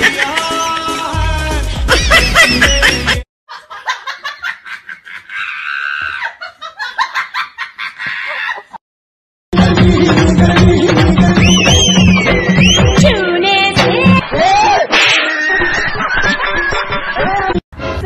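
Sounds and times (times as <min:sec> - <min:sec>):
people laughing and giggling: 0:00.0 - 0:00.9, 0:01.9 - 0:08.8, 0:14.0 - 0:17.6
music: 0:00.0 - 0:03.2, 0:09.5 - 0:14.2, 0:16.0 - 0:18.0.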